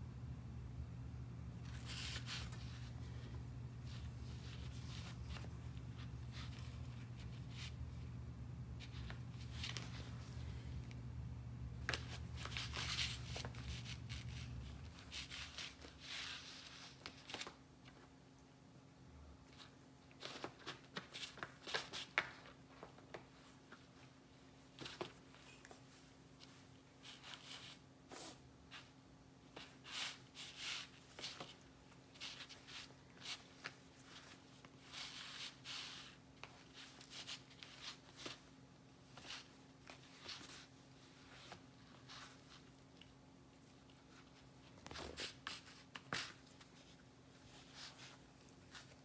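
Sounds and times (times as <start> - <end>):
cat claws scratching and rustling: 1.6 - 7.8, 11.8 - 17.6, 29.6 - 49.0.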